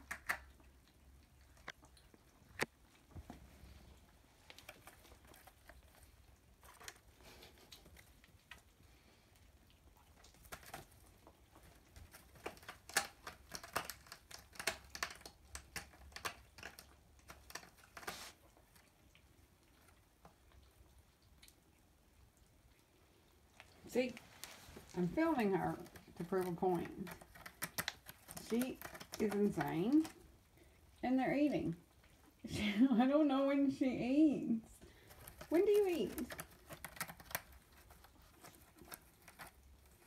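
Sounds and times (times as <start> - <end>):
kitten claws scratching cardboard: 10.2 - 18.8, 24.8 - 30.4, 35.0 - 40.0.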